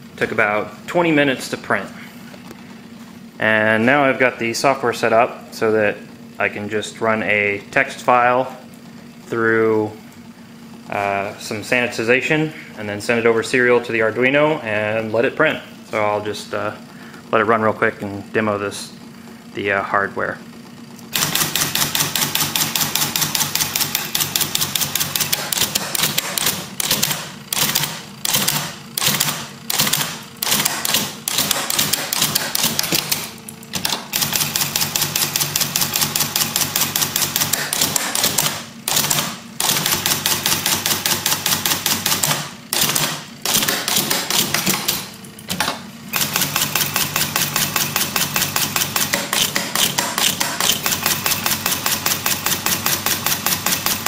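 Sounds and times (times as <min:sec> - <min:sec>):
electric typewriter clattering: 0:21.1 - 0:54.0.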